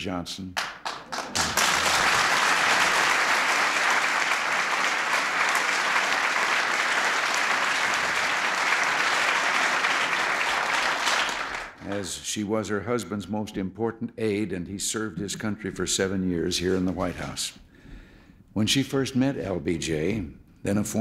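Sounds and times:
audience applauding: 0.6 - 12.2.

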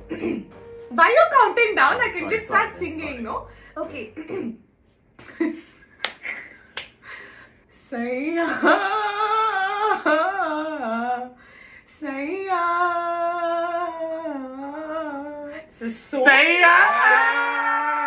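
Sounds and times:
woman singing slow melody: 7.8 - 15.9.

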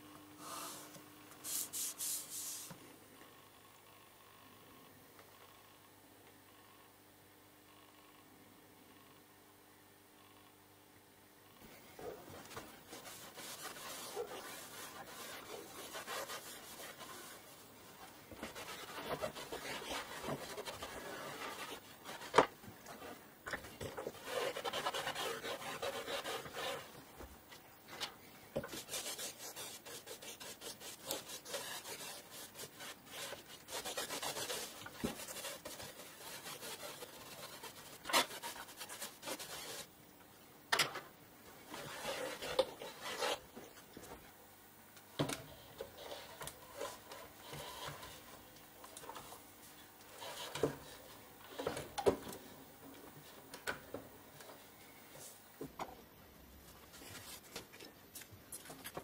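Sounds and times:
cloth wiping over vinyl: 0.4 - 2.8, 12.4 - 23.2, 24.1 - 27.0, 28.7 - 39.9, 41.7 - 43.4.

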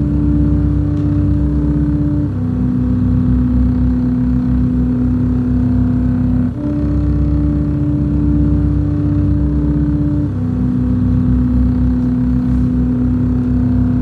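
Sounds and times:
pulsing bass: 0.0 - 14.0
sustained synthesizer chord: 0.0 - 14.0.

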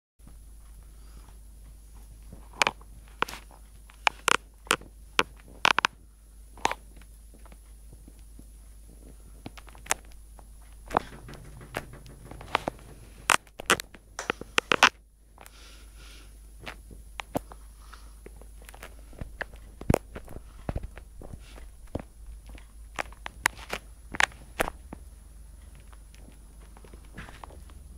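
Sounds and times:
brief low hum: 10.1 - 14.6.

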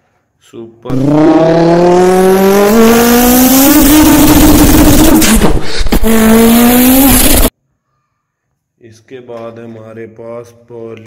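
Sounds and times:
race car engine revving: 0.9 - 7.5.

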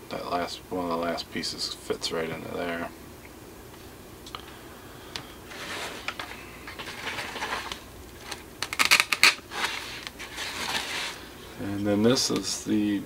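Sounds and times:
plastic parts clicking and rustling: 6.0 - 10.9.

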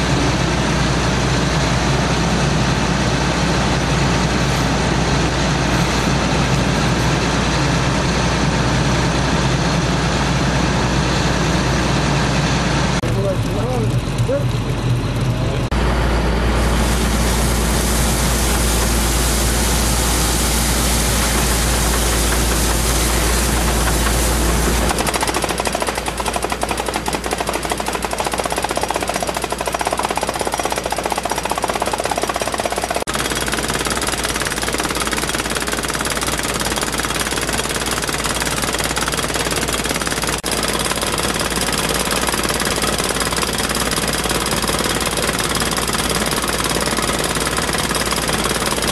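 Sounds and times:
heavy low rumble: 0.1 - 25.1
water hammer hammering rapidly: 18.4 - 48.9.

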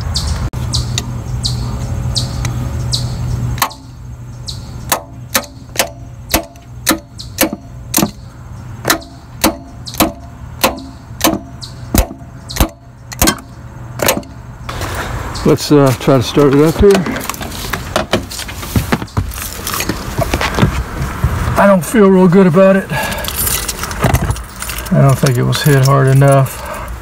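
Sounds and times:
low hum: 0.0 - 16.2
metal tool tapping on metal: 8.8 - 14.4.

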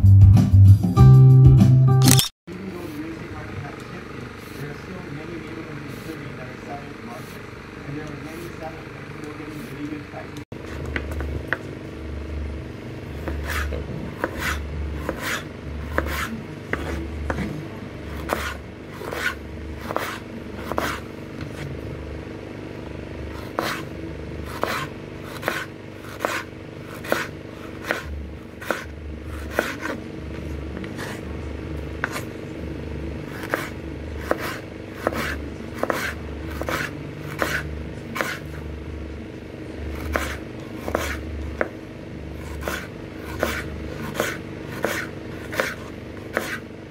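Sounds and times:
knife slicing radish on board: 13.2 - 21.8, 23.4 - 31.3, 32.0 - 32.4, 33.2 - 38.6, 39.9 - 41.8, 42.4 - 46.7.

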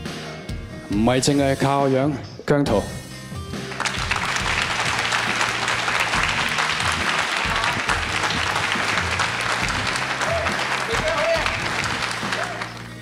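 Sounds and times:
group of people clapping: 3.6 - 13.0.

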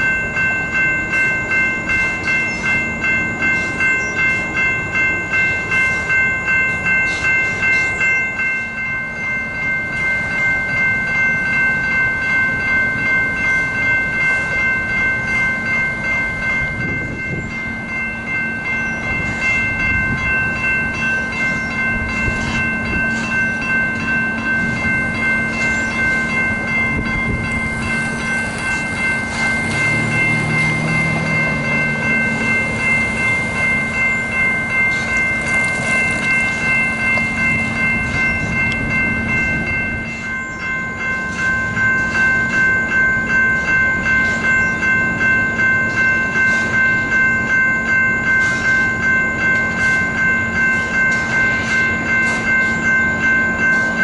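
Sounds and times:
railroad crossing bell ringing: 0.0 - 54.0.

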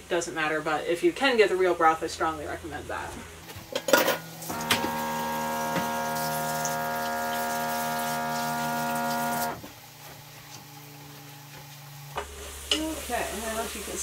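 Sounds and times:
steady hum of held tones: 3.7 - 9.7.

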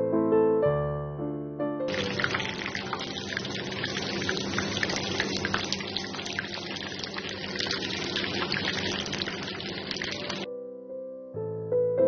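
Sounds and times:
oil popping and crackling: 1.9 - 10.5
sausages sizzling in hot oil: 1.9 - 10.5.

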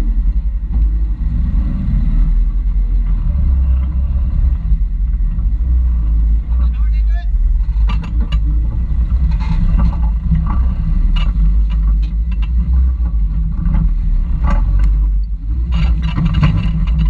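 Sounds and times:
engine low rumble: 0.0 - 17.0
sharp clicks and knocks: 6.5 - 17.0.

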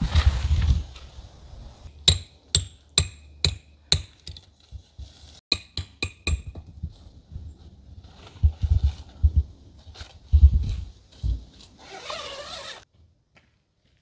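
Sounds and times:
hammer striking metal stake: 1.9 - 4.5, 5.5 - 6.7.

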